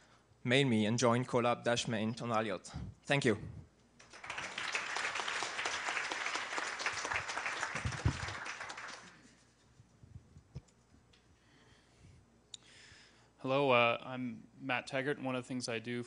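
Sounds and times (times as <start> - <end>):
audience applauding: 4.0 - 9.3.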